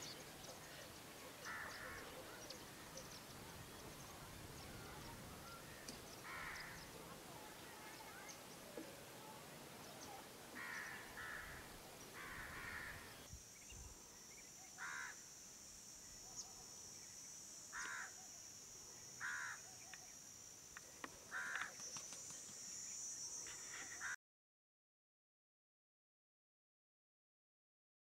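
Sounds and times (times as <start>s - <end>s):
high-pitched hiss: 0.0s - 24.2s
crow cawing: 1.4s - 2.1s, 6.2s - 6.8s, 10.6s - 13.1s, 14.8s - 15.2s, 17.7s - 18.2s, 19.2s - 19.6s, 21.3s - 21.7s.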